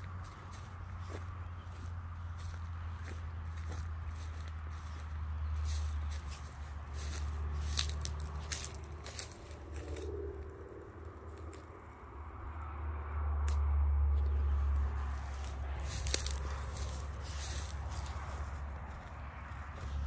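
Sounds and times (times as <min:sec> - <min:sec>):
footsteps crunching over debris: 0:00.0 - 0:10.2, 0:14.6 - 0:20.0
steady low rumble: 0:00.0 - 0:20.0.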